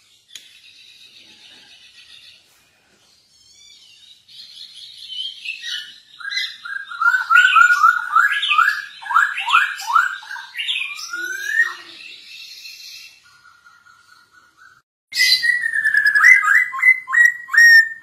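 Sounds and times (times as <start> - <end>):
bird singing whistled phrases: 3.5 - 13.2, 15.1 - 18.0.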